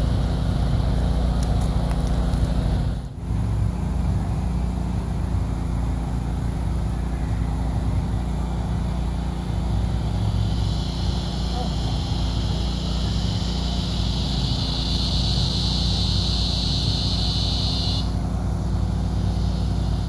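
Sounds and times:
portable generator running: 0:06.1 - 0:20.0.

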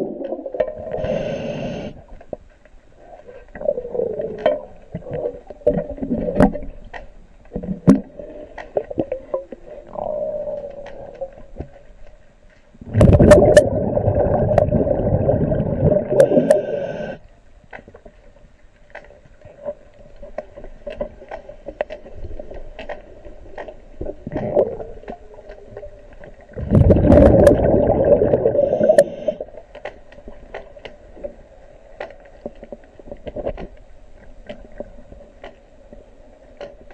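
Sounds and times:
faint steady hum: 0:00.0 - 0:36.9
diver exhaling bubbles underwater: 0:12.8 - 0:17.2, 0:26.5 - 0:29.5.

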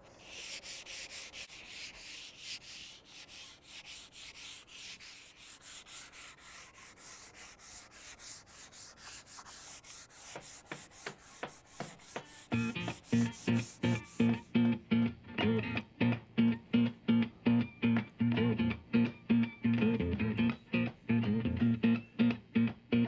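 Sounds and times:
sandpaper sanding wood: 0:00.0 - 0:14.5.

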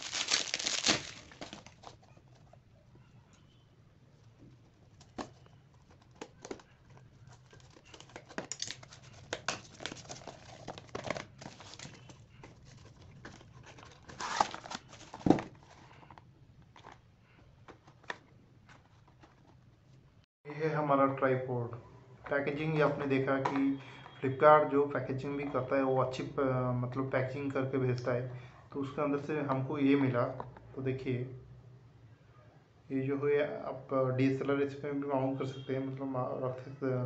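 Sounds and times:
plastic packaging crinkling and tearing: 0:00.0 - 0:02.0, 0:07.2 - 0:12.1, 0:12.7 - 0:15.2.

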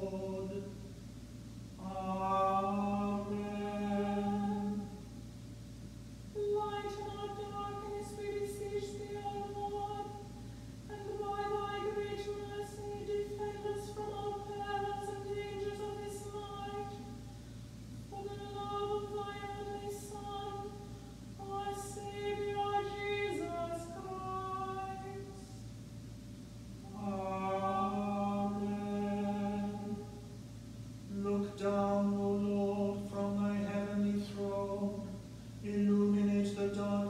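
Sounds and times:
lower voice chanting: 0:00.0 - 0:00.9, 0:01.7 - 0:05.2, 0:06.3 - 0:17.4, 0:18.0 - 0:25.6, 0:26.7 - 0:30.4, 0:31.0 - 0:37.0
higher voice chanting: 0:26.8 - 0:30.2.

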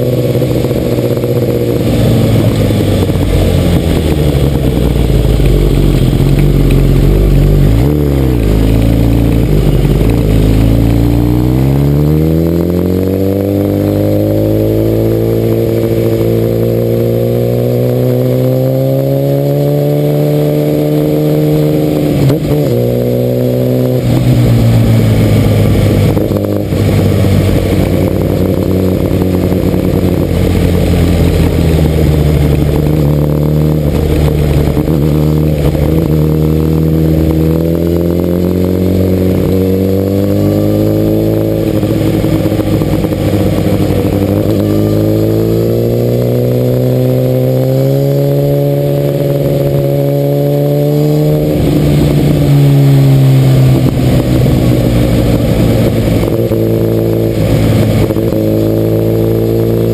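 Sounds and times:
wind rush: 0:00.0 - 0:11.4
motorcycle engine running: 0:00.0 - 0:59.9.

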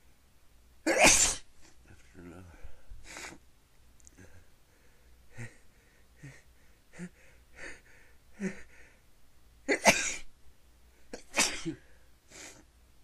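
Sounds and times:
person sneezing: 0:00.9 - 0:01.8, 0:09.7 - 0:10.3, 0:11.2 - 0:12.6
short breaths: 0:02.5 - 0:03.4, 0:04.1 - 0:09.1.

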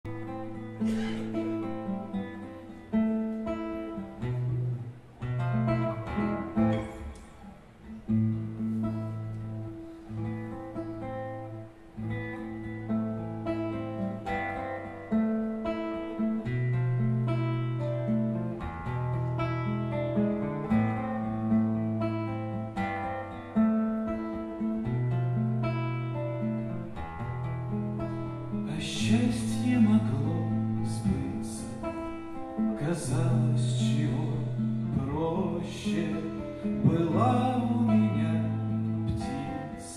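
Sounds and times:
acoustic guitar playing: 0:00.0 - 0:39.9.

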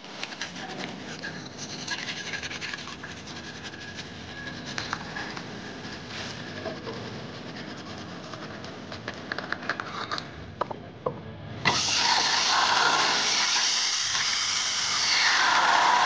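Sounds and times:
toothbrush scrubbing teeth: 0:01.2 - 0:06.1.

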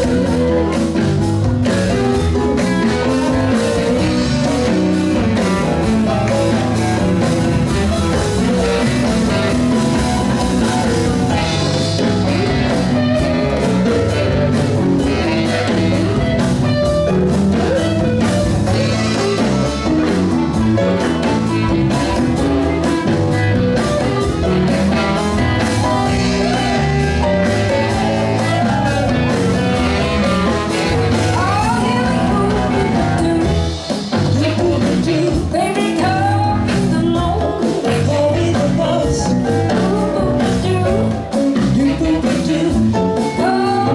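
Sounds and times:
bass: 0:00.0 - 0:43.9
drum kit: 0:00.0 - 0:43.9
electric guitar: 0:00.0 - 0:43.9
person singing: 0:25.6 - 0:43.9.

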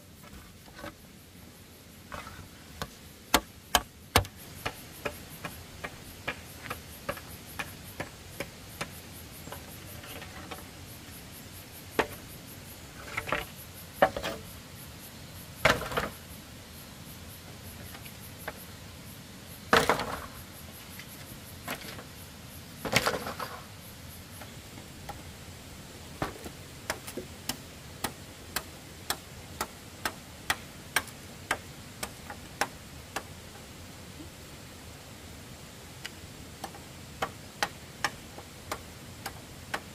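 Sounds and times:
machete striking bamboo: 0:02.8 - 0:05.2.

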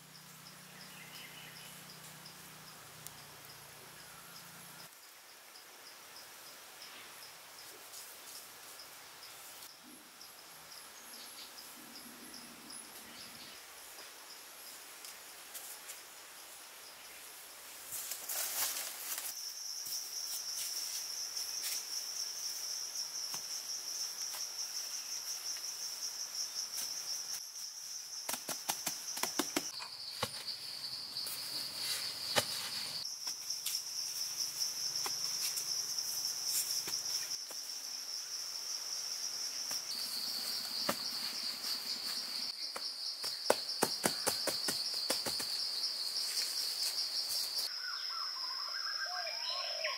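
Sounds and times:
insects droning: 0:00.0 - 0:49.9
grass sod crackling: 0:31.2 - 0:33.8.

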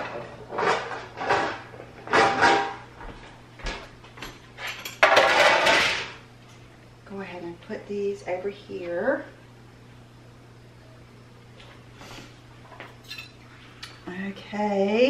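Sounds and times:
metal pan clattering on counter: 0:04.9 - 0:06.1.

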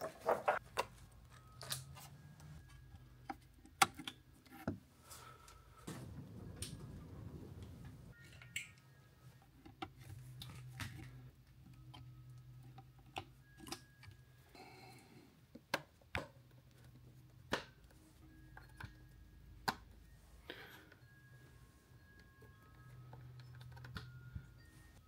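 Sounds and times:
faint low hum: 0:05.0 - 0:13.6.

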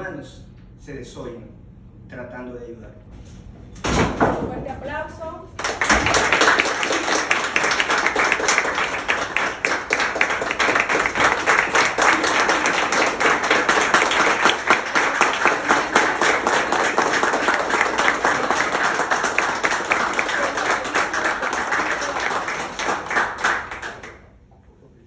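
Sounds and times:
people applauding: 0:05.6 - 0:24.4.

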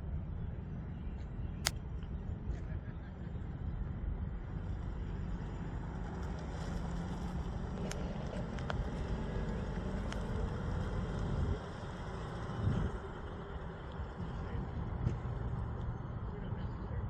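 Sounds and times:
car engine rumbling at low revs: 0:00.0 - 0:17.0.

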